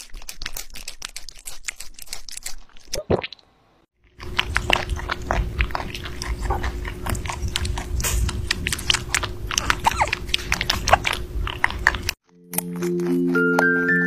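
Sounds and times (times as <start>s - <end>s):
rabbit chewing and crunching: 0.0s - 3.0s, 4.0s - 14.0s
steady low hum: 4.2s - 12.2s.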